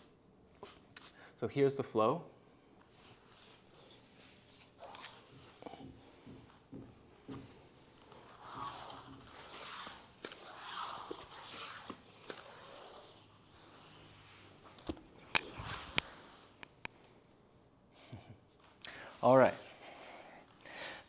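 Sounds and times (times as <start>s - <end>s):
breathing: 1.0s - 1.4s, 18.8s - 19.2s, 19.8s - 21.0s
body sliding on floor: 2.9s - 16.6s
hands or feet tapping floor: 5.2s - 9.4s.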